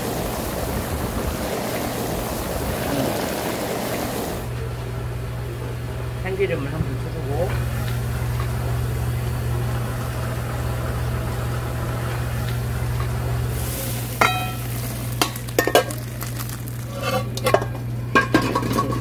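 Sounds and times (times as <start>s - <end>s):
steady low hum: 0.0s - 19.0s
soup bubbling: 7.8s - 17.8s
ladle stirring: 13.6s - 19.0s.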